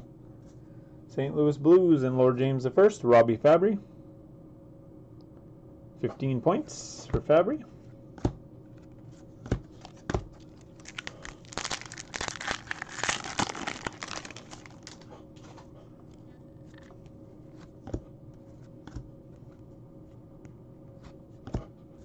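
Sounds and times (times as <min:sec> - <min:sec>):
cards crinkling and rustling: 0:09.7 - 0:15.6.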